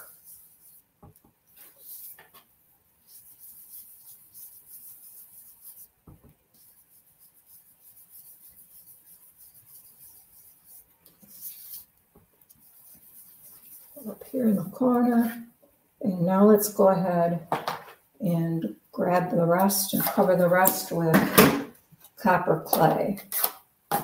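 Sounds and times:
brush scrubbing on cardstock: 0.0s - 0.9s, 1.5s - 15.4s.

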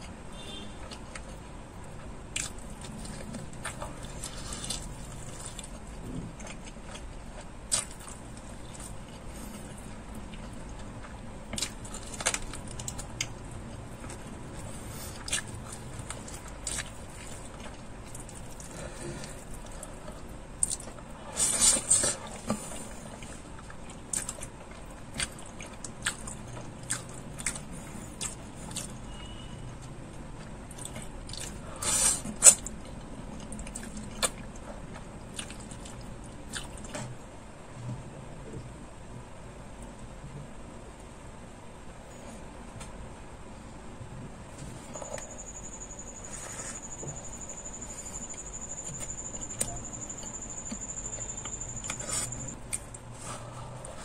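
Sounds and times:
chewing and biting chicken: 0.8s - 29.4s, 30.4s - 37.1s.

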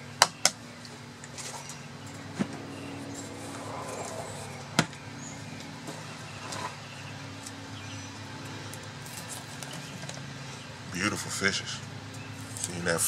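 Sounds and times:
low hum: 0.7s - 7.8s.

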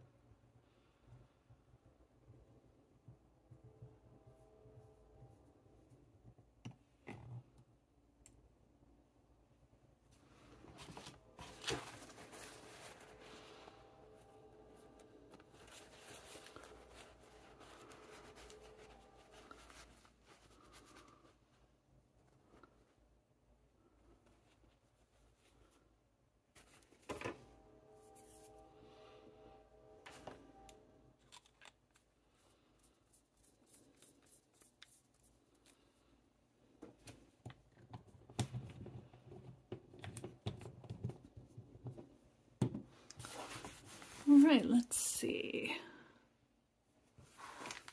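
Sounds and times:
paper towel rustling: 10.2s - 13.9s, 15.2s - 21.4s, 43.2s - 44.9s, 47.2s - 47.9s.

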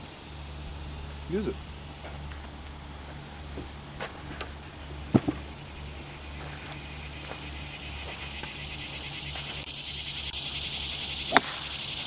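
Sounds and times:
small engine idling: 0.0s - 12.0s
high buzzing: 4.6s - 12.0s.

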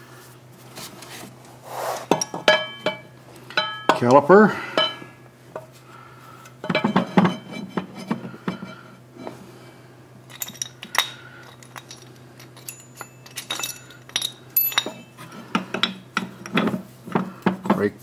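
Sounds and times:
metal brake parts clinking: 2.1s - 4.1s, 6.6s - 7.9s, 10.3s - 16.8s.

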